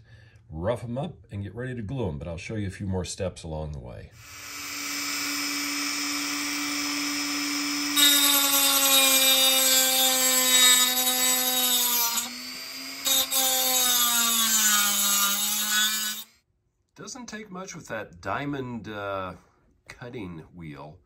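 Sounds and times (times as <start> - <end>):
cutting wheel grinding metal: 4.2 - 16.3
rotary tool whining: 4.2 - 16.3.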